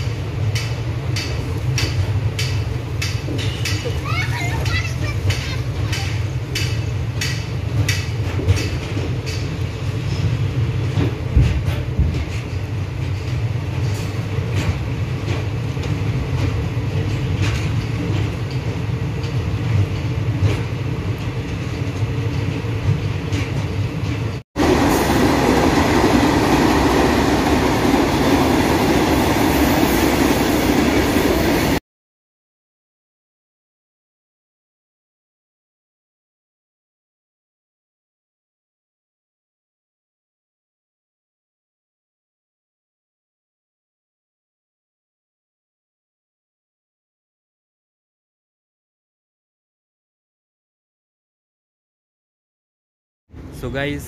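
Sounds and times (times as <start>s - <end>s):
train rumbling on rails: 0.0s - 31.8s, 53.3s - 54.0s.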